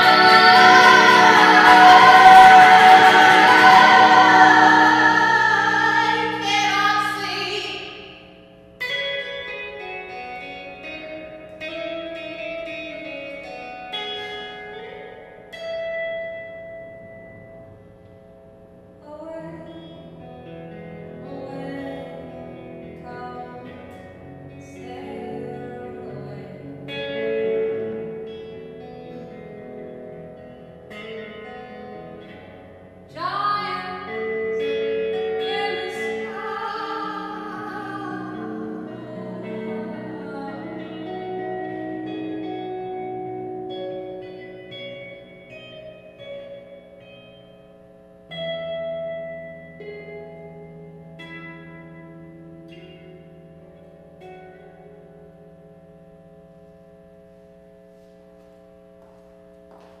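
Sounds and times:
woman singing long notes: 0.0s - 8.0s, 35.4s - 42.1s
sustained electric guitar: 0.0s - 60.0s.

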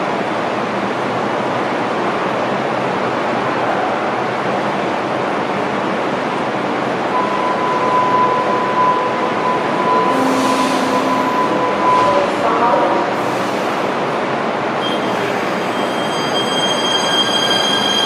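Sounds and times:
train rushing hum: 0.0s - 18.0s
steady high tone: 7.1s - 12.8s, 14.8s - 18.0s.

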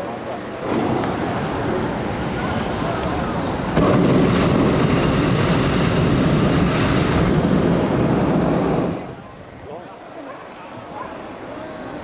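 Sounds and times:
propane burner roaring: 0.6s - 9.4s.

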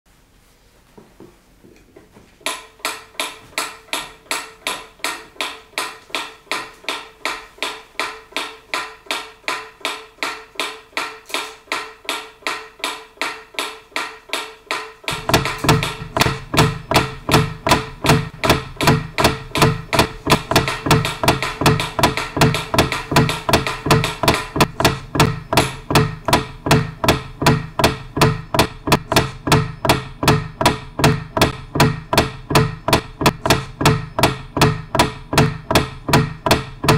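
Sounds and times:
rhythmic percussive music: 14.9s - 36.9s.

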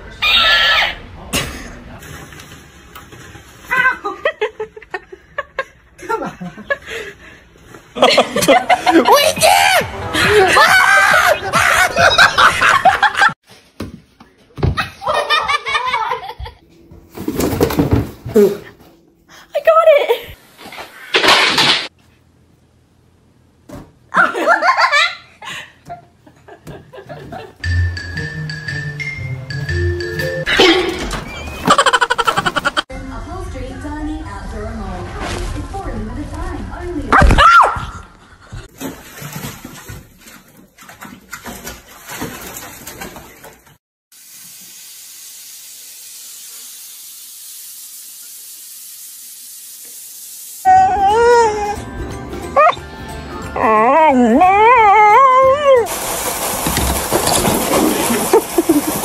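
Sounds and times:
person laughing loudly: 10.1s - 13.3s, 31.6s - 32.8s, 58.1s - 59.0s
background music with held notes: 27.6s - 30.5s, 50.8s - 54.3s
water running into bathtub: 38.7s - 50.7s, 55.8s - 59.0s.

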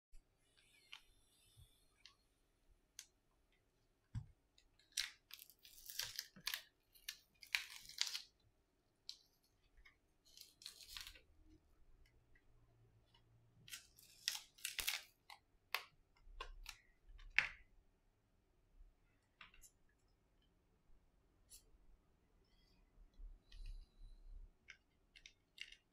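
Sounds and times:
adhesive crackling and tearing: 4.9s - 8.3s.

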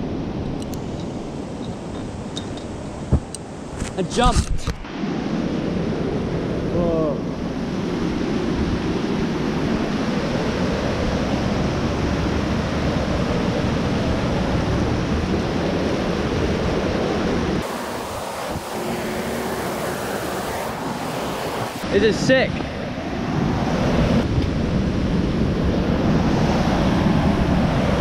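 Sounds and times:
wind buffeting microphone: 0.0s - 21.9s
water rushing through spillway: 17.6s - 22.0s.

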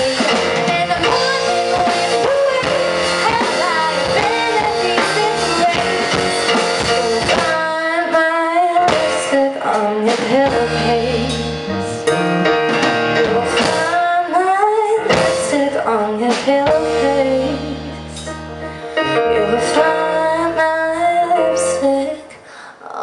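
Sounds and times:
electric bass: 0.0s - 7.7s, 10.2s - 14.0s, 15.0s - 22.0s
woman singing: 0.0s - 11.7s, 13.0s - 18.4s, 19.1s - 23.0s
drum kit: 0.0s - 22.0s.

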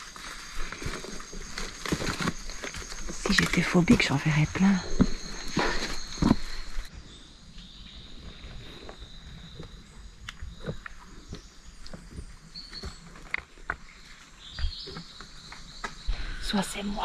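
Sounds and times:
footsteps on rocky leafy path: 0.0s - 6.9s, 10.6s - 16.1s.

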